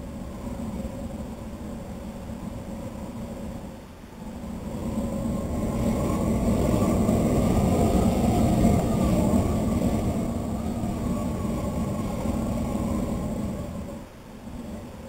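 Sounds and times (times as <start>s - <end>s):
gas flame roaring: 4.2s - 15.0s.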